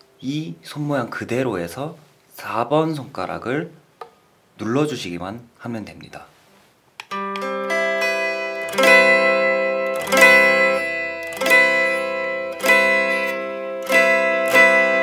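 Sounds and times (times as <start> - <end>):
electric guitar strumming chord: 7.1 - 15.0.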